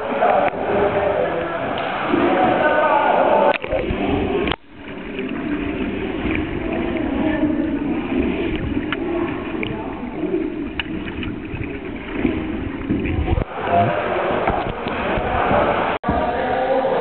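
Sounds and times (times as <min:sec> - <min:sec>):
muffled underwater water rumble: 0:00.0 - 0:16.3
faint clicks: 0:10.7 - 0:11.4.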